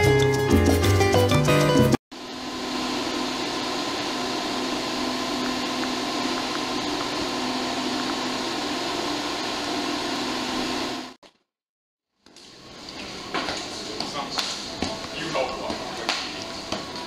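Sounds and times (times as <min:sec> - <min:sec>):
cooling fans whirring: 0:02.2 - 0:11.2, 0:12.5 - 0:17.0.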